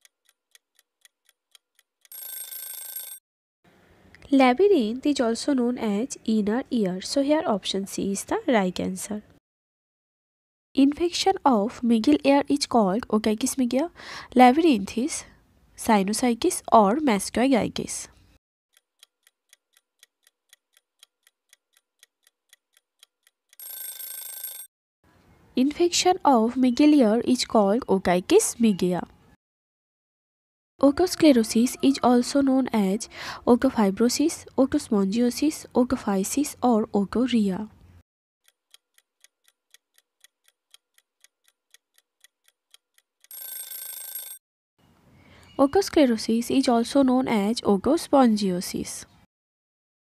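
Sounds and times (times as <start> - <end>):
clock ticking: 0.0 - 2.2, 18.7 - 23.6, 38.4 - 43.4.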